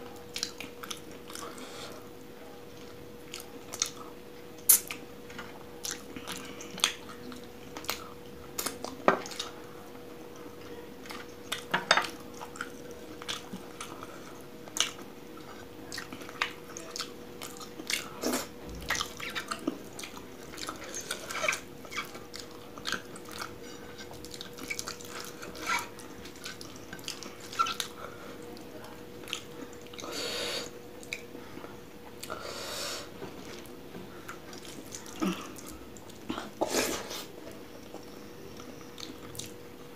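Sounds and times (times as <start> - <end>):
faint steady hum: 0.0 - 39.9
chewing and mouth clicks: 0.3 - 1.6, 2.8 - 9.6, 10.6 - 28.0, 29.2 - 30.1, 30.9 - 31.3, 37.8 - 39.6.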